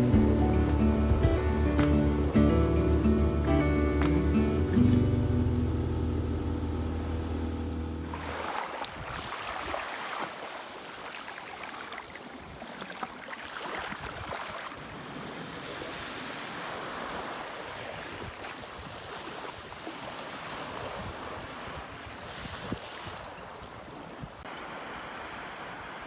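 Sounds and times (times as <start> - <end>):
small waves lapping on sand: 8.0 - 26.0.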